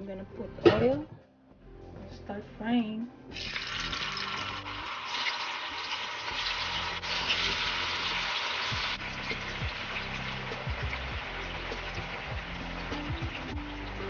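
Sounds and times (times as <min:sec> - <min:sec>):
tofu sizzling in hot oil: 0:03.4 - 0:14.0.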